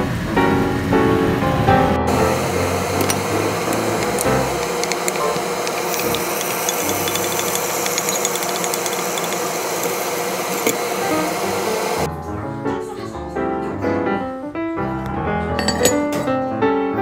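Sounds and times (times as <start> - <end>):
food sizzling in a pot: 2.1 - 12.1
wooden spatula stirring: 3.0 - 11.4.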